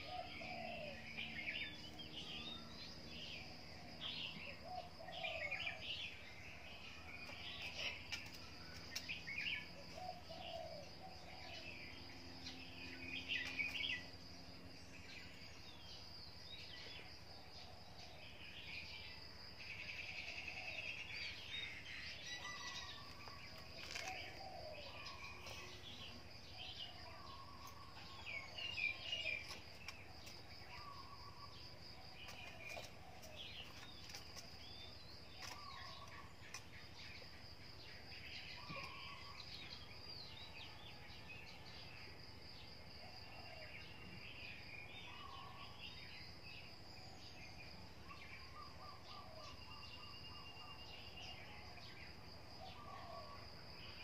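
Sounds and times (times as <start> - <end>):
birds chirping: 0.0 - 41.2.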